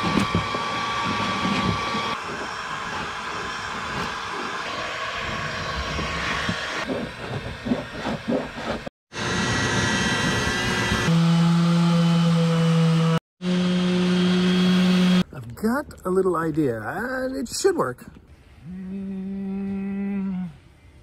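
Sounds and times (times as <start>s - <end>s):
rotary tool grinding paint off wood: 0.0s - 8.9s.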